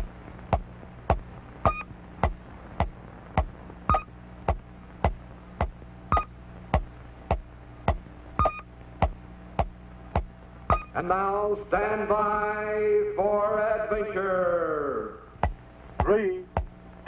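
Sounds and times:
low steady hum: 0:00.0 - 0:17.0
falling-pitch electronic bleeps: 0:01.6 - 0:01.9, 0:03.9 - 0:04.1, 0:06.1 - 0:06.3, 0:08.4 - 0:08.7, 0:10.7 - 0:11.0
higher beep: 0:01.7 - 0:01.9, 0:03.9 - 0:04.1, 0:06.1 - 0:06.3, 0:08.4 - 0:08.7, 0:10.7 - 0:11.0.

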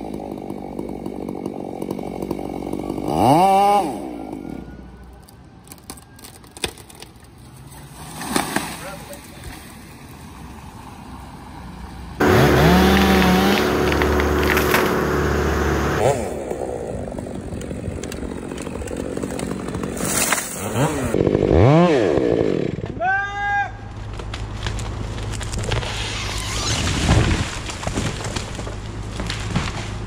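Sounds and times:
chainsaw cutting wood: 0:00.0 - 0:04.7, 0:12.2 - 0:23.0.

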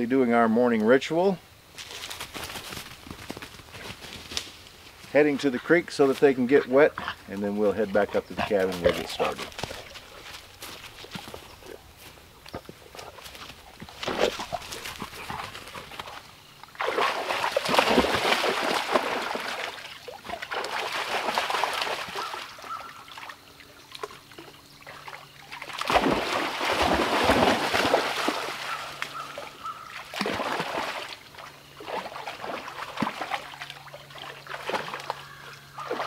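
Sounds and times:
dog splashing in water: 0:13.4 - 0:24.2, 0:24.8 - 0:36.0.

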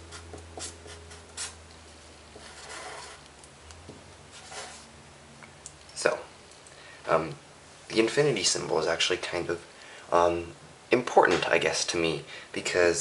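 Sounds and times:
marker writing on paper: 0:00.0 - 0:01.6, 0:02.4 - 0:03.2.

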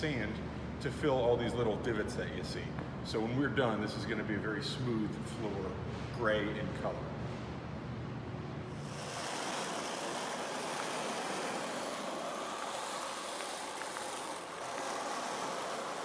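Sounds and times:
squeegee scraping concrete: 0:08.7 - 0:16.0.

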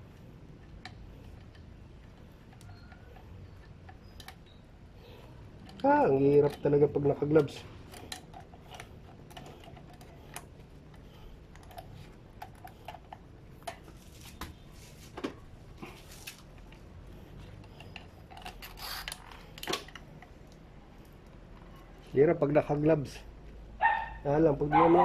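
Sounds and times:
small metal parts clicking: 0:00.5 - 0:14.0, 0:16.5 - 0:21.8.

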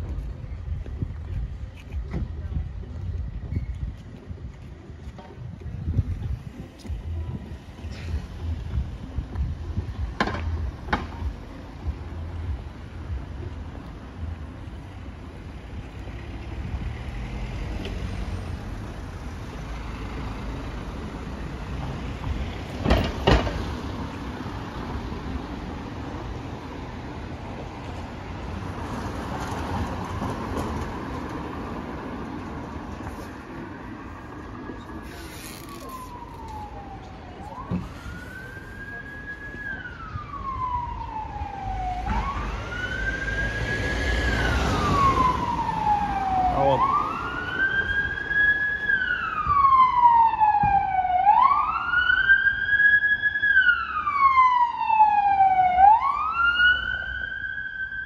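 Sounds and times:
street traffic: 0:00.0 - 0:58.0
emergency siren wailing: 0:35.3 - 0:58.0
vehicle passing by: 0:40.1 - 0:48.2.

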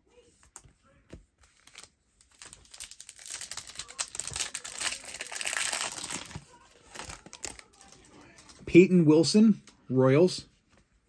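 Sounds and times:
foil wrapper crinkling and tearing: 0:01.5 - 0:08.6.

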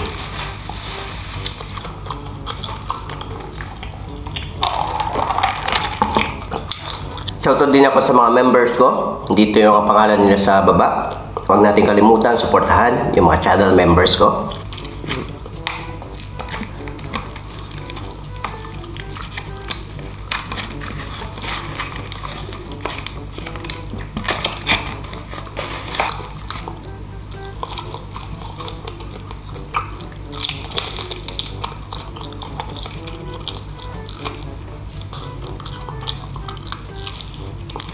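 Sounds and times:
fried chicken breading crackling: 0:00.0 - 0:08.2, 0:14.4 - 0:37.9
soft background music: 0:00.0 - 0:37.9
crunching bite: 0:14.5 - 0:18.2, 0:18.8 - 0:26.9, 0:27.6 - 0:37.9.

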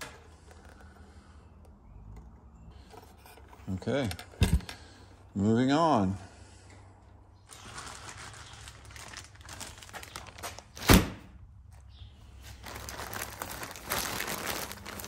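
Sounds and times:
plastic packaging crinkling: 0:07.5 - 0:11.0, 0:12.4 - 0:15.0.

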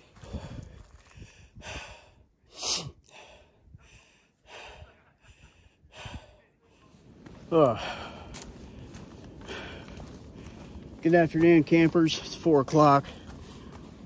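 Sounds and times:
footsteps on leafy trail: 0:00.0 - 0:01.4, 0:06.8 - 0:14.0
person breathing hard: 0:00.0 - 0:11.0.

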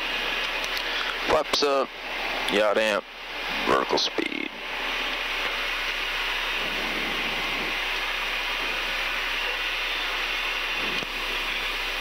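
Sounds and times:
airflow over airframe: 0:00.0 - 0:12.0
jet engines at climb power: 0:00.0 - 0:12.0.

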